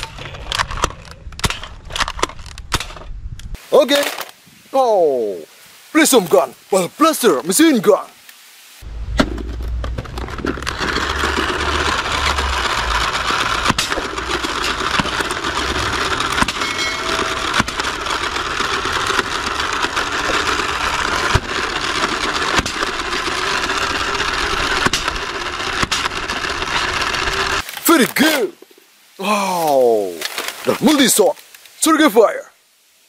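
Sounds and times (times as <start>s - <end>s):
toy ball blaster motor running: 10.2s - 27.6s.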